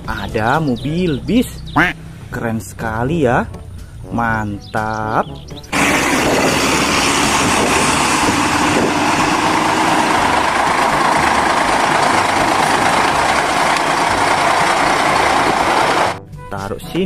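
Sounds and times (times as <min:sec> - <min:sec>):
bus diesel engine passing: 0:05.7 - 0:16.2.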